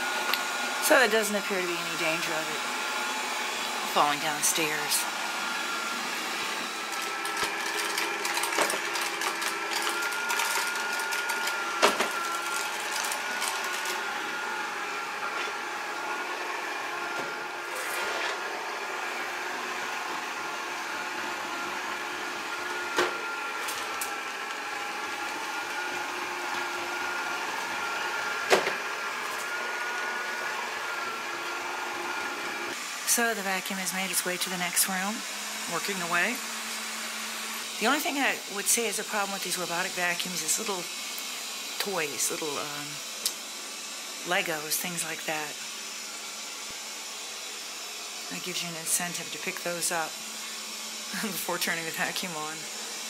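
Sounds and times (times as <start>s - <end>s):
robot vacuum humming: 0.0s - 53.0s.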